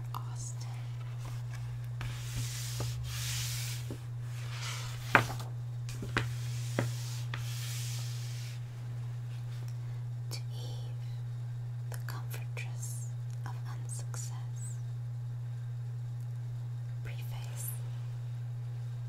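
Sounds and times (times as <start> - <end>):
book pages turning: 1.0 - 8.6.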